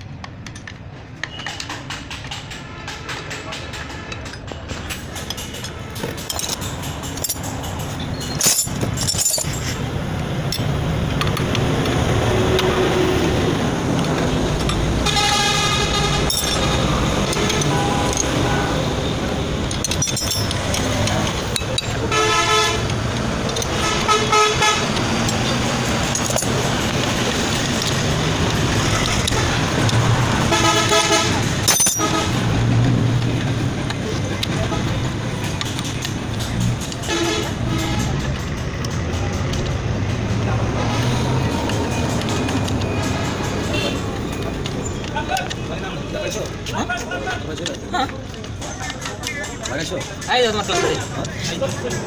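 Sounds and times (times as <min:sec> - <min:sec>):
street traffic noise: 0:00.0 - 0:52.0
spanners clinking against bolts: 0:00.1 - 0:11.6, 0:15.8 - 0:23.8, 0:24.8 - 0:30.2, 0:30.8 - 0:32.4, 0:33.2 - 0:40.3, 0:41.2 - 0:52.0
vehicle horn honking: 0:15.0 - 0:16.7, 0:22.1 - 0:22.9, 0:23.7 - 0:25.0, 0:30.4 - 0:32.4, 0:37.0 - 0:38.2.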